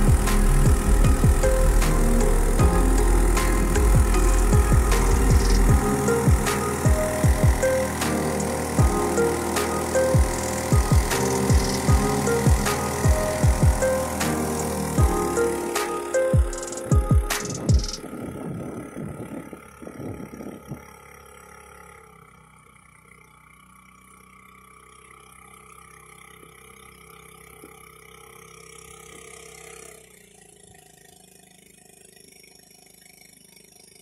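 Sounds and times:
small engine running: 0:00.0 - 0:34.0.

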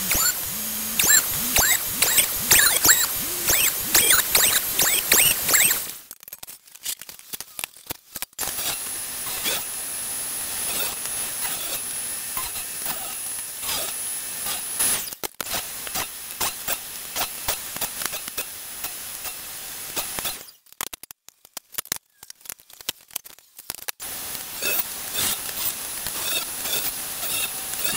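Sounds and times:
table saw ripping wood: 0:24.3 - 0:27.9.

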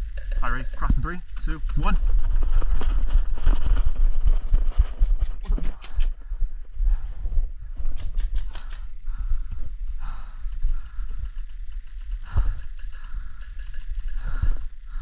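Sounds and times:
low microphone rumble: 0:00.0 - 0:15.0.

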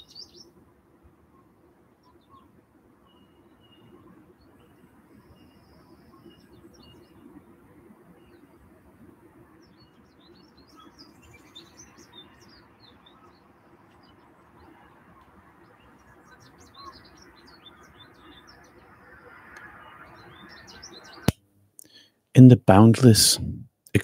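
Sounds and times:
birds chirping: 0:00.0 - 0:00.6, 0:01.3 - 0:23.2
steady low hiss: 0:00.0 - 0:24.0.

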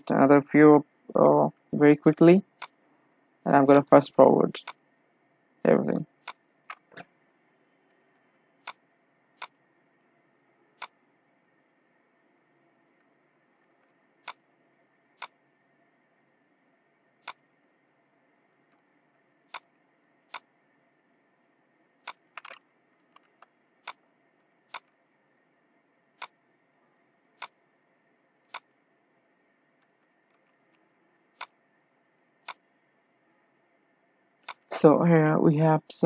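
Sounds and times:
faint room noise: 0:00.0 - 0:36.0
computer mouse clicking: 0:02.6 - 0:02.8, 0:06.2 - 0:07.1, 0:08.6 - 0:08.8, 0:09.4 - 0:09.6, 0:10.8 - 0:11.0, 0:13.0 - 0:14.5, 0:15.2 - 0:15.4, 0:17.2 - 0:17.4, 0:19.5 - 0:19.7, 0:20.3 - 0:20.5, 0:22.0 - 0:24.0, 0:24.7 - 0:25.0, 0:26.1 - 0:26.4, 0:27.4 - 0:27.6, 0:28.5 - 0:28.8, 0:31.4 - 0:31.6, 0:32.4 - 0:32.6, 0:34.4 - 0:34.7.

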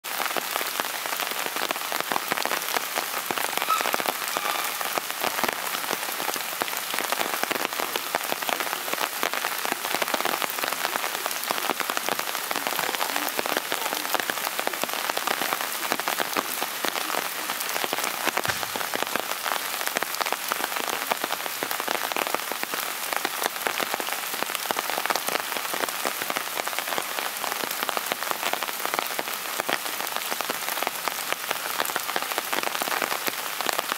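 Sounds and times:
steady rain falling: 0:00.0 - 0:33.9.

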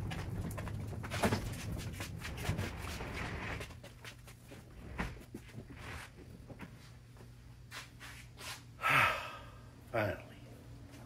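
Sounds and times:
knocks and rustles of handled parts: 0:00.0 - 0:05.7
low steady hum: 0:00.0 - 0:11.0.

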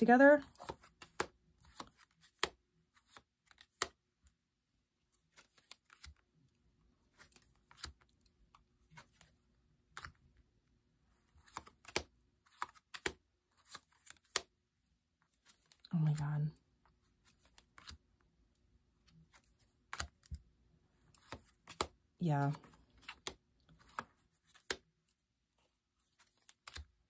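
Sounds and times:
cards clicking and tapping: 0:00.4 - 0:04.0, 0:05.3 - 0:06.2, 0:07.1 - 0:10.4, 0:11.3 - 0:14.5, 0:17.2 - 0:18.1, 0:19.1 - 0:24.9, 0:26.1 - 0:27.0.

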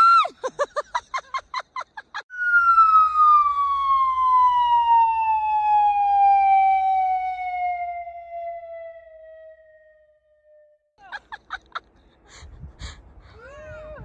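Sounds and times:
descending whistle tone: 0:02.3 - 0:10.9.

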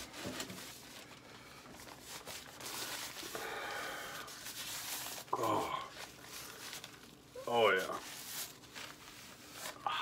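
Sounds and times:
paper napkin rustling: 0:00.0 - 0:03.6, 0:04.2 - 0:09.9
breathing through napkin: 0:00.7 - 0:07.0.

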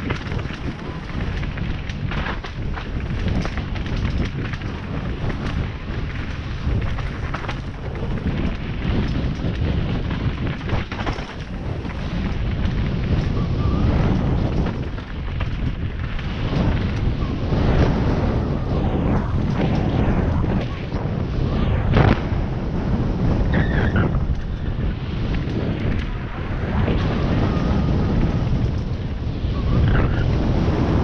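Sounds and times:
bike knocks and rattles: 0:00.0 - 0:17.1
wind rush on microphone: 0:00.0 - 0:31.0.

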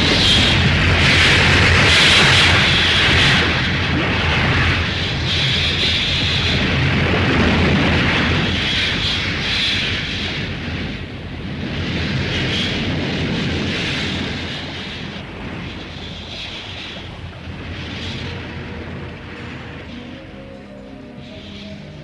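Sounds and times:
rushing hissing noise: 0:00.0 - 0:22.0
low rumble: 0:10.2 - 0:22.0.

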